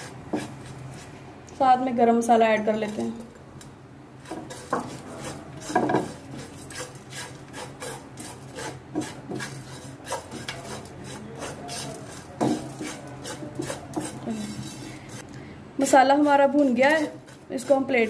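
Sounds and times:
spatula scraping a frying pan: 4.2s - 15.2s, 15.9s - 18.0s.

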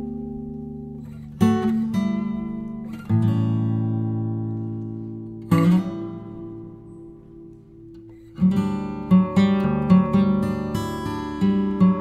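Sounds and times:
acoustic guitar strummed chords: 0.0s - 12.0s.

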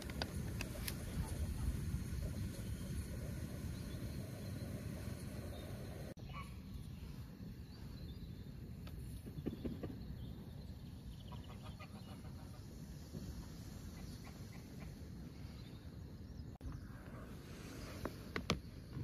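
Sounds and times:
low background rumble: 0.0s - 9.4s.

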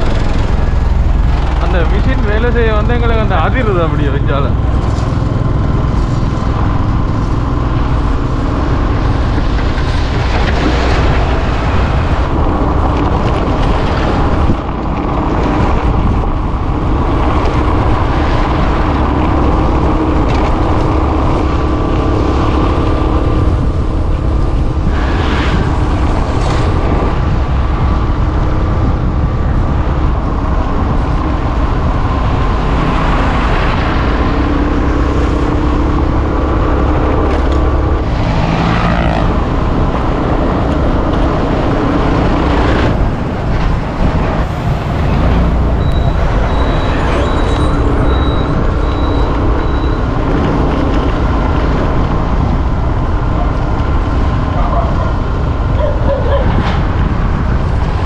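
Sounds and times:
motorcycle engine running: 0.0s - 11.5s
wind noise on microphone: 0.0s - 58.0s.

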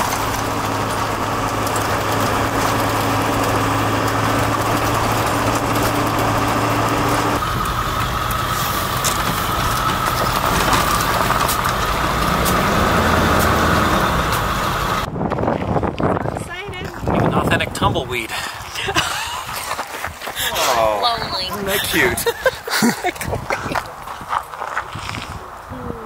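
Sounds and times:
road noise hiss: 0.0s - 15.1s, 17.6s - 26.0s
low engine hum: 0.0s - 19.6s.

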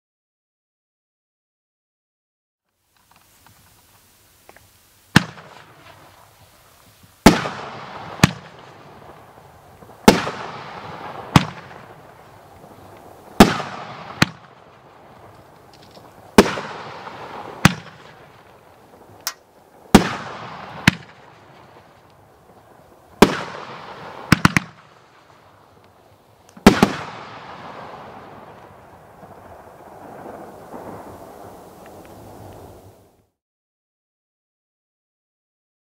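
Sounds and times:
fireworks booming: 4.5s - 33.2s.

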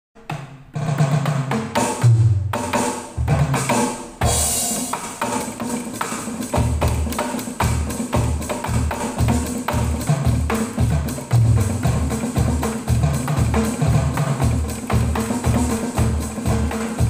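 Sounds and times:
low drum notes: 0.2s - 17.0s
electronic hand-percussion hits: 1.8s - 17.0s
cymbal crash: 3.2s - 5.6s.

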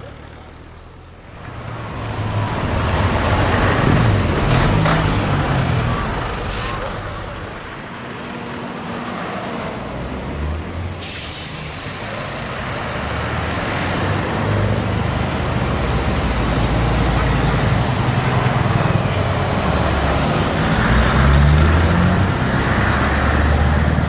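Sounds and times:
diesel trucks driving past: 0.0s - 24.0s
air brake hiss: 11.0s - 12.3s.

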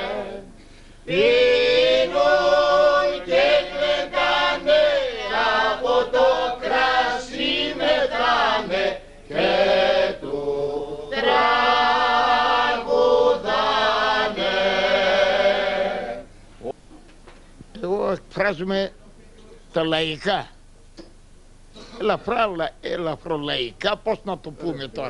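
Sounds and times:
men singing together: 0.0s - 16.3s.

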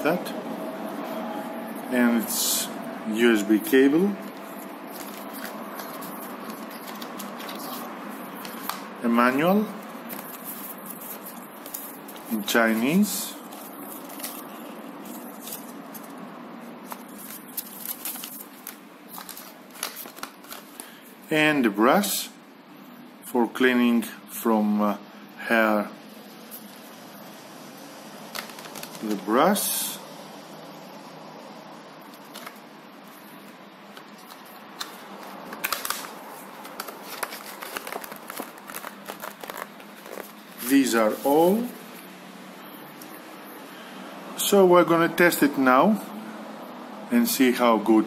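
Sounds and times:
paper booklet rustling and tapping: 4.2s - 8.9s, 9.8s - 12.4s, 13.4s - 16.2s, 16.8s - 20.9s, 28.3s - 29.1s, 32.1s - 32.6s, 33.4s - 41.6s.

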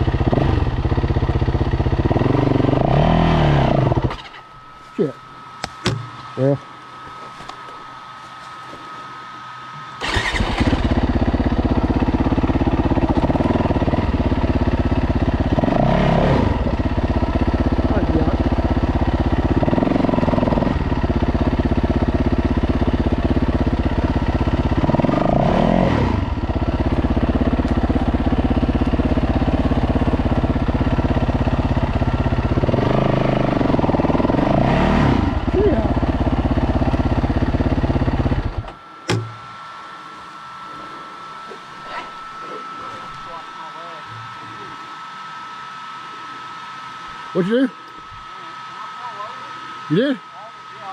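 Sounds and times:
dirt bike engine starting and idling: 0.0s - 4.5s, 10.0s - 39.3s.

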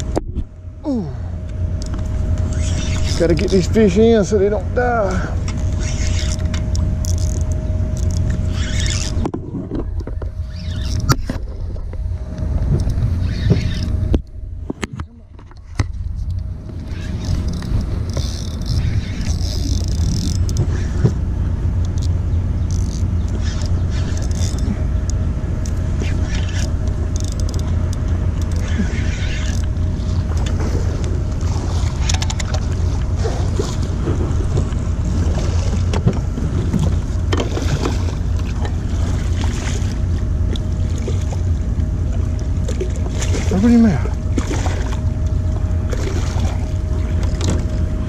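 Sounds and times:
wind rumble on microphone: 0.0s - 48.0s
reel and rod clicks: 1.5s - 4.0s, 5.4s - 21.2s, 21.8s - 33.1s
fishing reel being cranked: 1.8s - 4.1s, 5.0s - 9.3s, 10.4s - 11.4s, 12.8s - 13.9s, 16.8s - 20.9s, 22.7s - 24.7s, 25.6s - 30.5s.

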